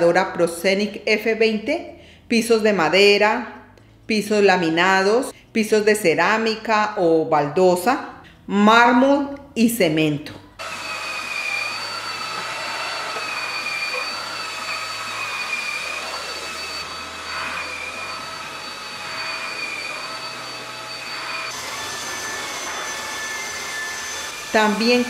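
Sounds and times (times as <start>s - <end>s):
vacuum mop suction and whine: 10.6s - 25.0s.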